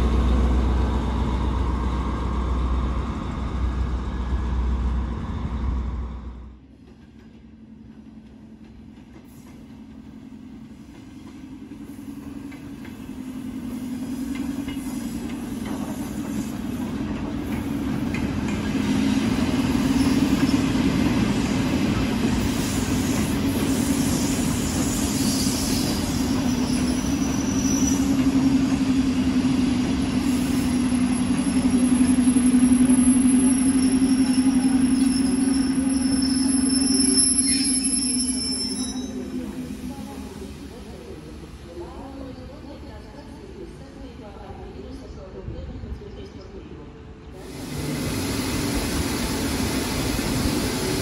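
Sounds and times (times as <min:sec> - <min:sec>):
train running on tracks: 0:00.0 - 0:51.0
wheel squeal: 0:23.7 - 0:28.2, 0:33.4 - 0:39.3.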